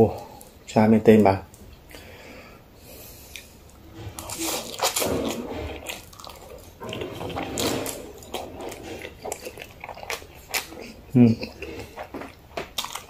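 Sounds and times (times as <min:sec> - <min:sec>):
chewing: 0:03.2 - 0:13.0
person slurping noodles: 0:03.4 - 0:12.4.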